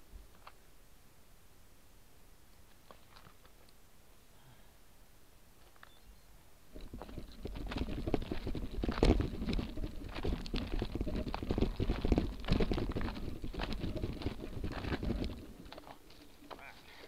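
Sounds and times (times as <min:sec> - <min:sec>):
bike rattling: 0:06.7 - 0:17.0
tyres crunching on gravel: 0:06.8 - 0:17.0.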